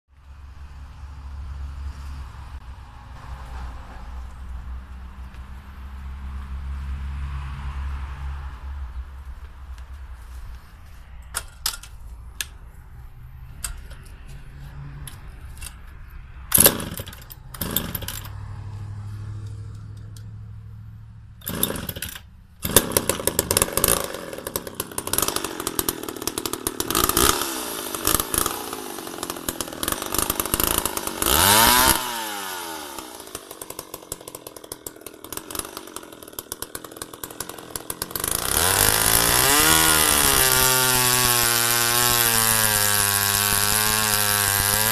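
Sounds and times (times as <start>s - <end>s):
chainsaw clicks: 11.2s - 12.7s, 13.4s - 18.8s, 21.4s - 44.9s
chainsaw engine idling and revving: 13.4s - 44.9s.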